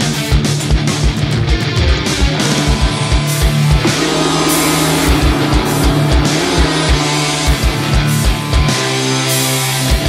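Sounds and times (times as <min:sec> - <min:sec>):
instrumental heavy metal: 0:00.1 - 0:10.0
cymbal wash: 0:03.4 - 0:09.2.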